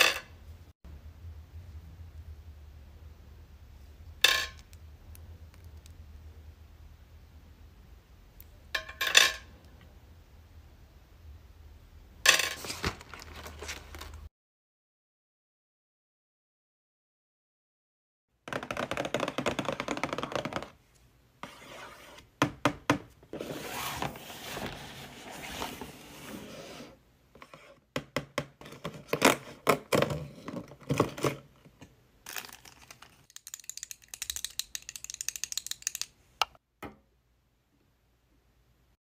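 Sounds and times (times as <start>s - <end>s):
cardboard scraping and rustling: 23.3s - 27.7s.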